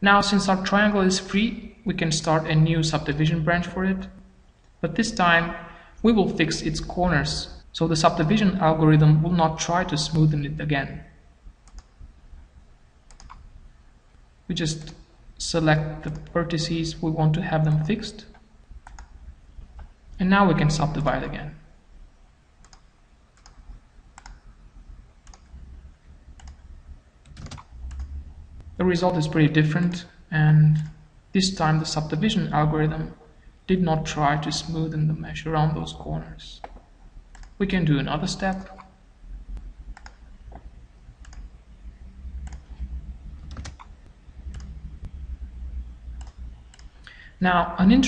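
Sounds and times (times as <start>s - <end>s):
faint low hum: 0.0s - 48.0s
computer mouse clicking: 11.6s - 12.1s, 13.0s - 13.5s, 17.8s - 20.0s, 22.6s - 24.6s, 25.2s - 25.6s, 26.3s - 28.7s, 36.6s - 37.6s, 39.6s - 41.6s, 42.3s - 45.2s, 46.1s - 47.1s.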